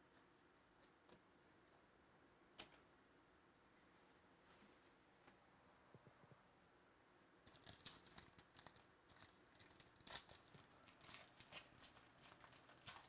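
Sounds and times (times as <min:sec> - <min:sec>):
foil pack tearing and crinkling: 0:07.5 - 0:13.0.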